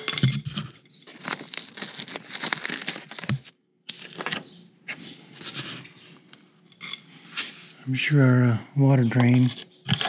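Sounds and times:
tape and debris crinkling and tearing: 0:00.0 - 0:04.5.

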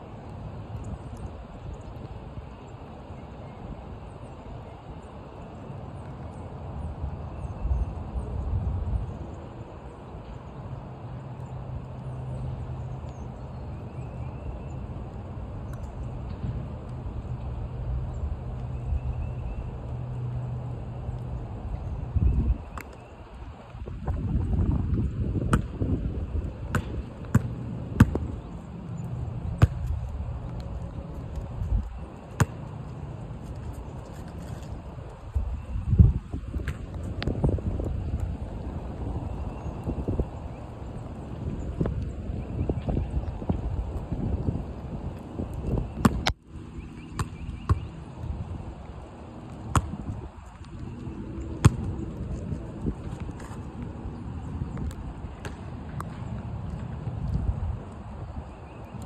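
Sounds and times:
wind rumble on microphone: 0:00.0 - 0:59.0
basketball bouncing on asphalt: 0:23.8 - 0:34.7, 0:35.3 - 0:38.3, 0:45.7 - 0:48.4, 0:49.5 - 0:52.4, 0:54.8 - 0:57.4.

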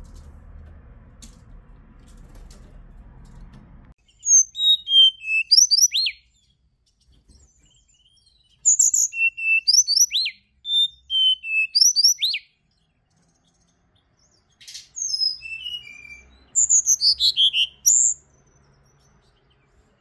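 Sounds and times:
faint low hum: 0:00.0 - 0:04.2
bird whistled song: 0:04.0 - 0:20.0.

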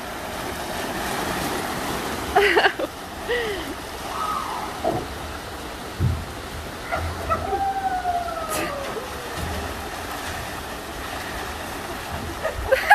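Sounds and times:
water rushing: 0:00.0 - 0:12.9
dull thump: 0:05.9 - 0:07.5.

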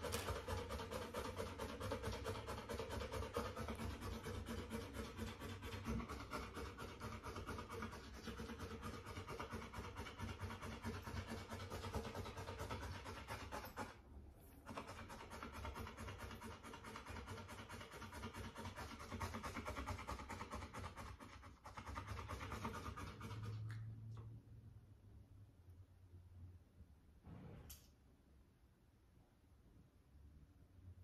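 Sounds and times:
puppy panting: 0:00.0 - 0:14.0.

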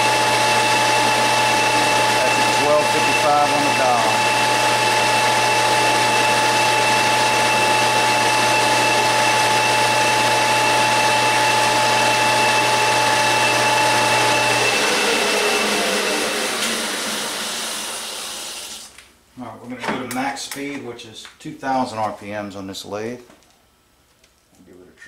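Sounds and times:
metal lathe whining: 0:00.0 - 0:18.7
lathe spindle spinning down: 0:00.0 - 0:18.9.

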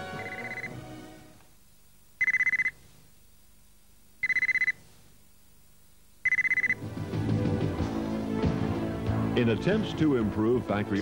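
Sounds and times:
electronic trilling beeps: 0:00.2 - 0:00.8, 0:02.2 - 0:02.8, 0:04.2 - 0:04.8, 0:06.2 - 0:06.8.

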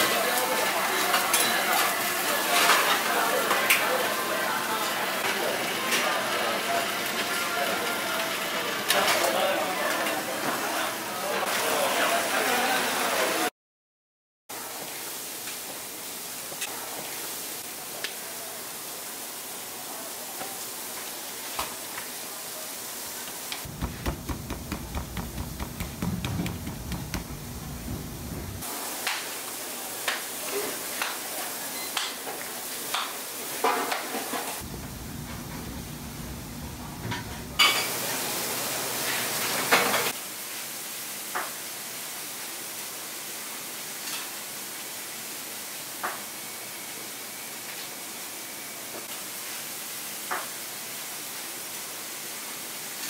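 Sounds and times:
fingers patting dough: 0:23.7 - 0:28.6
sharp knock: 0:23.7 - 0:28.6.

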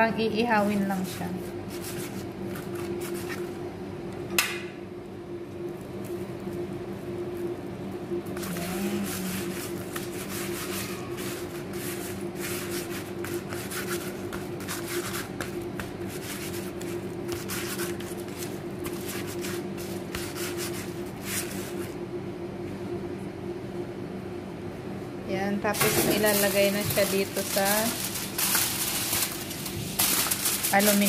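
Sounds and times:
steady low hum: 0:00.0 - 0:31.0
hand rubbing and scraping fish: 0:01.2 - 0:03.5, 0:08.4 - 0:22.0, 0:26.2 - 0:31.0.

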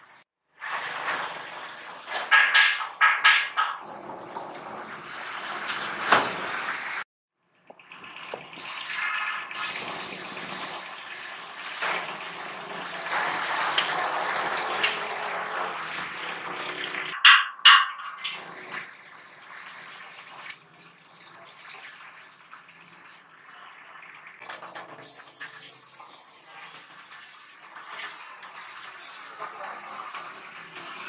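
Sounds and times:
paint spray gun hissing: 0:09.6 - 0:16.6
sharp knocks: 0:17.2 - 0:18.4.

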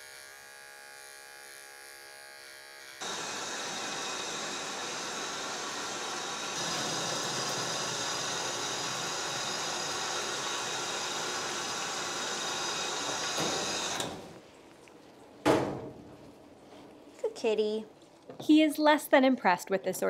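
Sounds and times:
hose water spraying into tub: 0:03.0 - 0:14.1.

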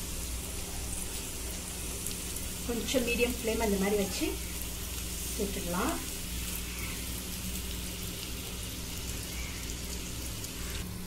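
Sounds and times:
pastries deep-frying in oil: 0:00.0 - 0:11.0.

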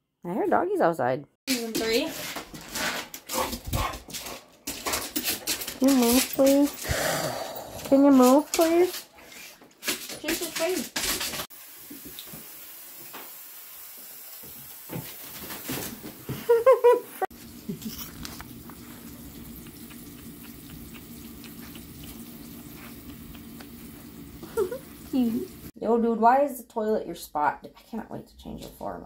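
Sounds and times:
cat paws scratching in a bathtub: 0:01.5 - 0:06.8, 0:07.9 - 0:11.5, 0:14.9 - 0:16.5, 0:17.4 - 0:25.7.

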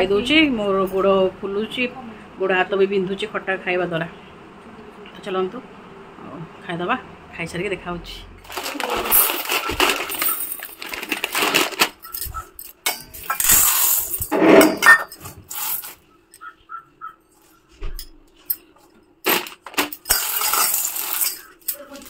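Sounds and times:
faint steady hum: 0:00.0 - 0:22.0
crunching food: 0:08.4 - 0:12.5.

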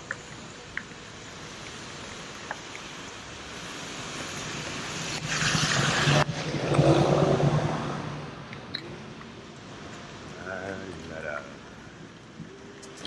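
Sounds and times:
bus passing on wet road: 0:00.0 - 0:10.4
tyres hissing on wet street: 0:00.0 - 0:13.0.

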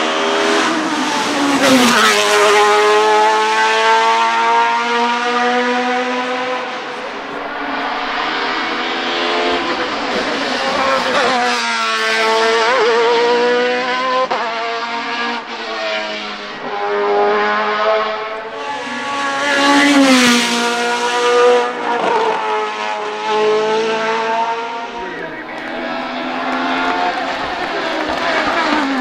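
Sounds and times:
race car engine revving: 0:00.0 - 0:29.0
race car passing by: 0:00.0 - 0:29.0.

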